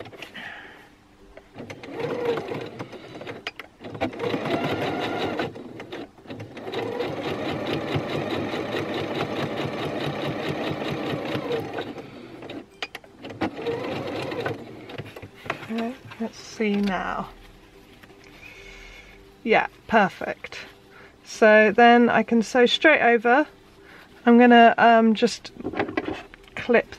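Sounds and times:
sewing machine stitching: 0:01.6 - 0:12.6, 0:13.2 - 0:15.2.

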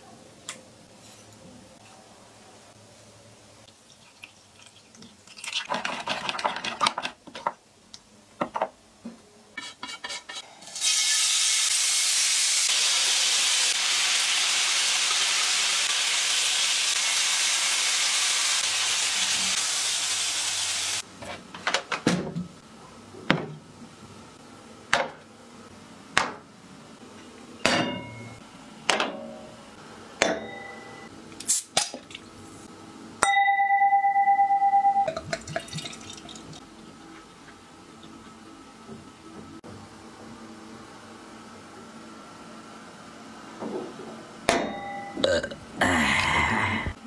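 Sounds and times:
metal spoon scraping ceramic bowl: 0:09.6 - 0:10.4
food sizzling on grill pan: 0:10.6 - 0:21.0.

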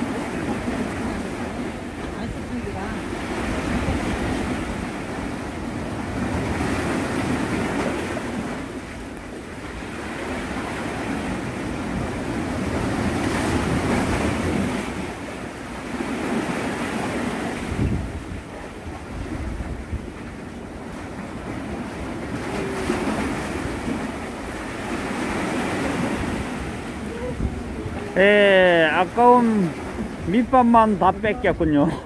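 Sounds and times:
wind buffeting microphone: 0:00.0 - 0:08.4, 0:16.3 - 0:28.2
sea waves washing on shore: 0:00.0 - 0:32.0.

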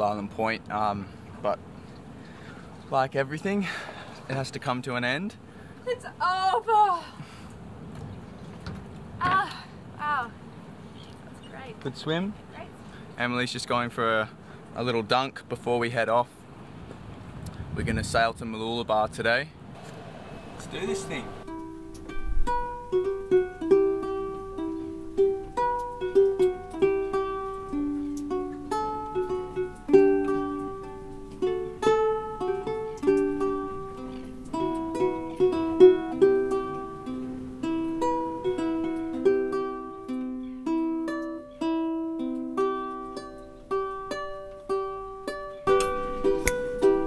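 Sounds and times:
plucked string melody: 0:20.8 - 0:47.0.

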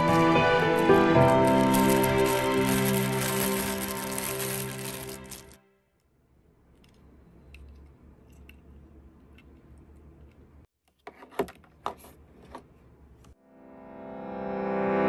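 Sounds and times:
plastic bag crinkling: 0:00.0 - 0:05.6
background music: 0:00.0 - 0:05.8.

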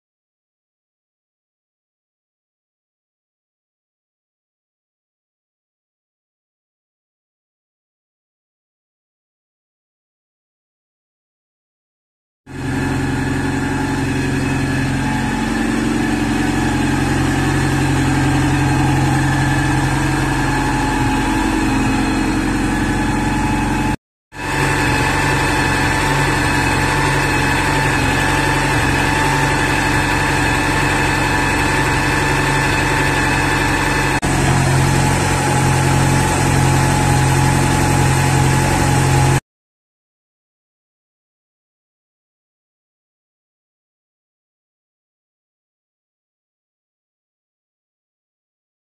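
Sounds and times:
car engine idling: 0:12.6 - 0:39.4.

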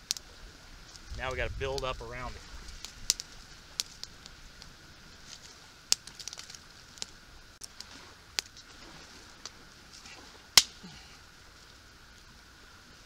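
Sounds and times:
campfire crackling: 0:00.0 - 0:13.0
dry twigs snapping: 0:02.6 - 0:08.7, 0:09.4 - 0:10.8.

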